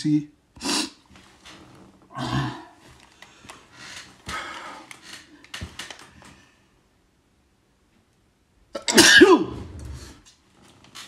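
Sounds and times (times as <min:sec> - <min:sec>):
man hissing and sniffling breaths: 0:00.6 - 0:01.1, 0:02.3 - 0:05.5
man grunting: 0:02.1 - 0:02.8.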